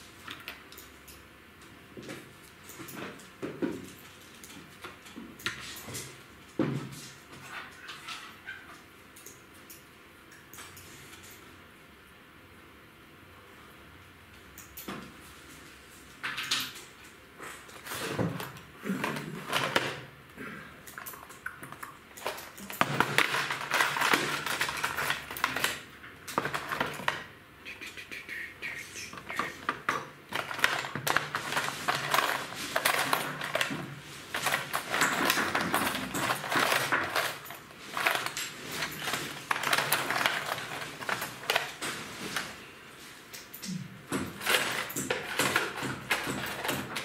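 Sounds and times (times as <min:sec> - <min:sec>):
small hard objects clattering: 0:22.2 - 0:27.2, 0:29.4 - 0:41.9.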